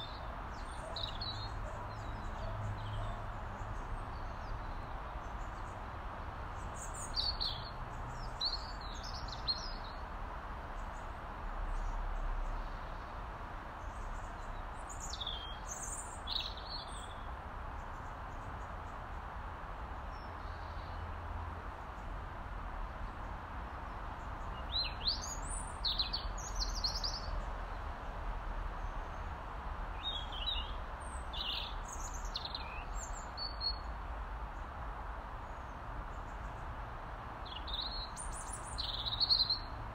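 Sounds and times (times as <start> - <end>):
robin singing: 0.0 - 5.8, 6.6 - 10.0, 14.4 - 17.3, 24.4 - 27.4, 29.9 - 33.9, 37.4 - 39.8
background hiss and rumble: 0.0 - 39.9.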